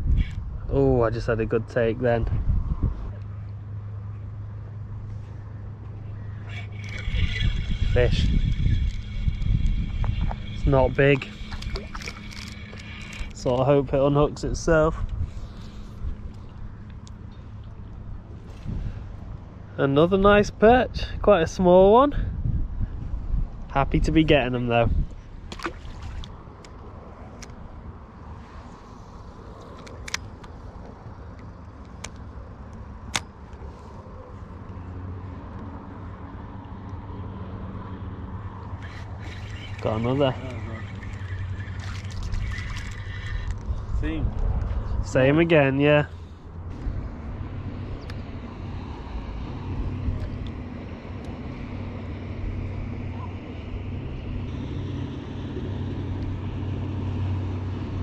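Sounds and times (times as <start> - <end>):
wind on microphone: 0.0 - 0.7, 2.2 - 3.2, 6.5 - 13.4, 22.1 - 26.4, 38.8 - 45.2
wind rumbling on microphone: 0.0 - 3.4, 4.9 - 31.8, 37.5 - 58.0
low engine drone: 1.3 - 21.2, 23.7 - 58.0
fishing reel clicks: 6.5 - 13.4, 38.8 - 43.7.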